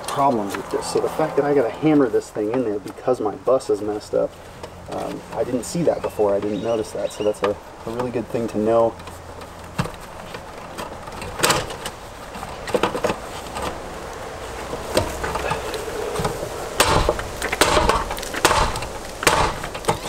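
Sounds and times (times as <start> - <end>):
circuit breakers knocked into panel: 16.8 - 20.0.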